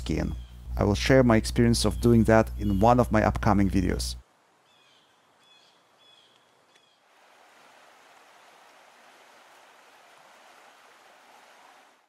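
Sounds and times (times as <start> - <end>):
faint steady hiss: 0.0 - 12.0
small bird chirping: 1.8 - 3.2, 4.7 - 7.0.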